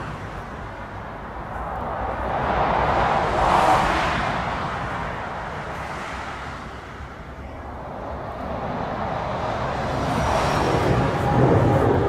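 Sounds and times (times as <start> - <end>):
jet engines rushing: 7.6 - 12.0.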